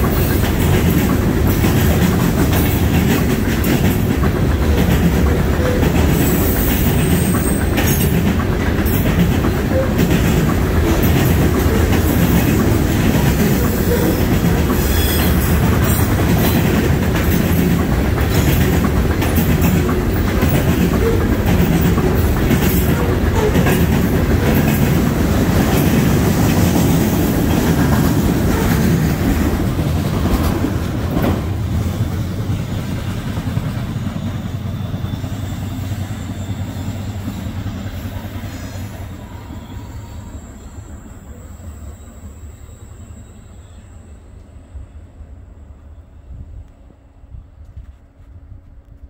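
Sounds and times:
wheels clacking over rail joints: 0:00.0 - 0:34.5
freight train rolling past: 0:00.0 - 0:49.0.

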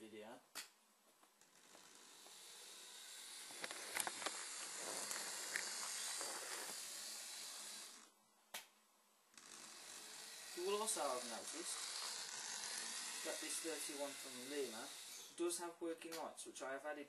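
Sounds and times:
model train electric motor buzz: 0:01.5 - 0:08.1, 0:09.3 - 0:15.4.

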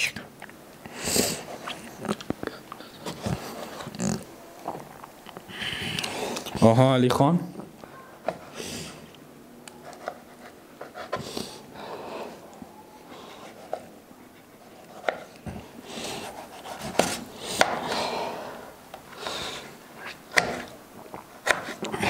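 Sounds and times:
heavy panting breaths: 0:05.4 - 0:06.6, 0:11.0 - 0:14.6, 0:15.5 - 0:19.9.

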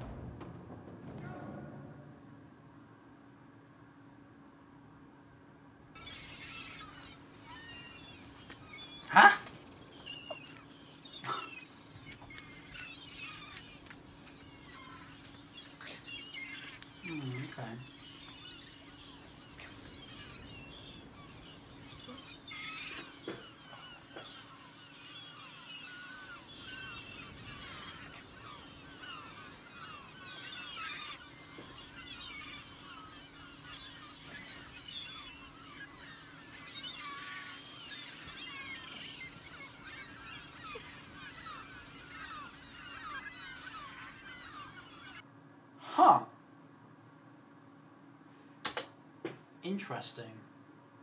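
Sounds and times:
seagulls crying: 0:06.0 - 0:45.3.

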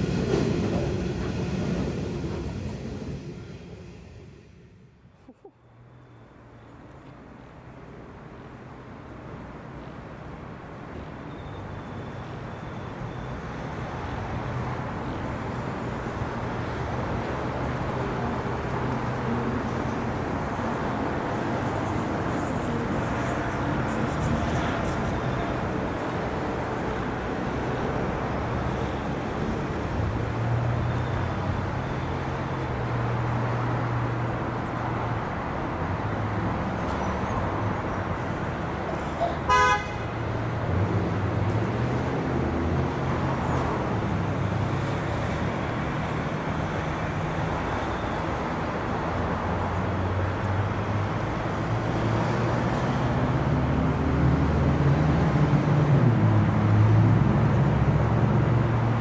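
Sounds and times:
locomotive engine drone: 0:00.0 - 0:59.0
train horn blast: 0:39.5 - 0:40.2.

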